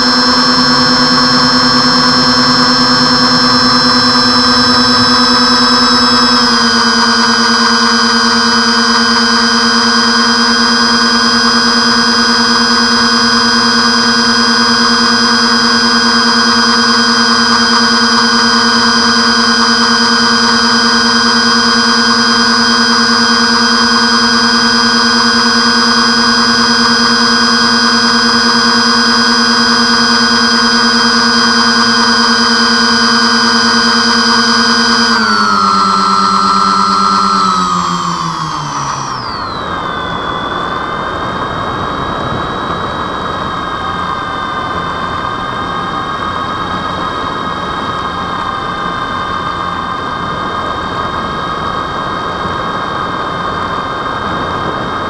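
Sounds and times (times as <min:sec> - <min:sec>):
model airplane motors whining: 0:00.0 - 0:55.0.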